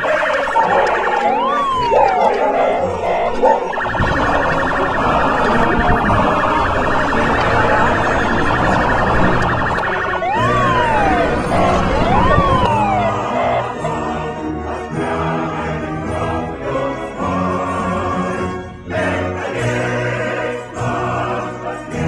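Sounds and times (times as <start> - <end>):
emergency vehicle siren wailing: 0.0 - 15.2
city noise: 0.0 - 15.5.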